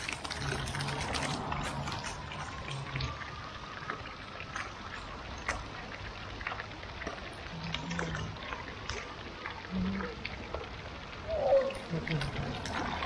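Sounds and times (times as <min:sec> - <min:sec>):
fountain water splashing on stone: 0:00.0 - 0:13.0.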